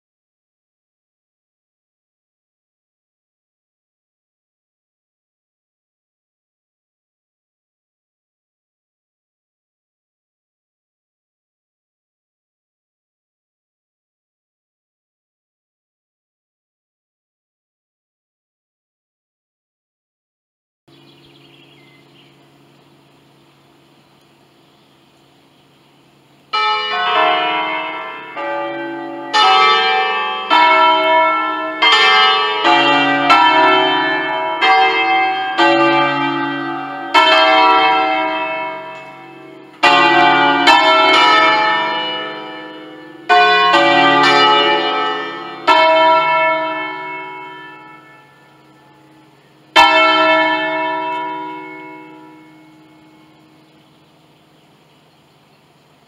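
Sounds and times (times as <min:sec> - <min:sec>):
church bells ringing: 0:26.1 - 0:54.3.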